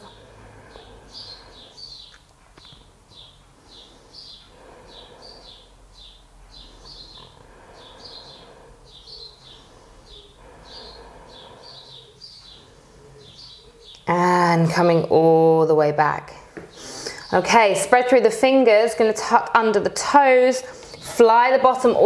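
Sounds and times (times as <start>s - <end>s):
bird chirping: 0.0s - 15.2s.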